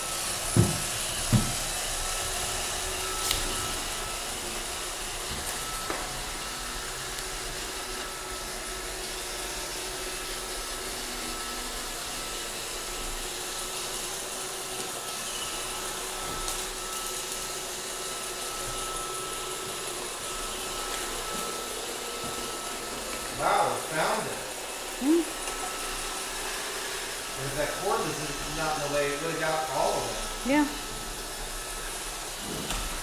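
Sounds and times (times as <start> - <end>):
thin steady whine: 0.0 - 8.6
robot vacuum motor and brushes whirring: 0.0 - 33.0.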